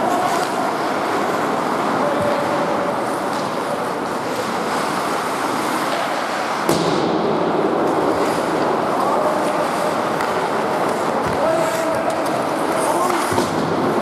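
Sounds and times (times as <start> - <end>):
skates on ice: 0.0 - 14.0.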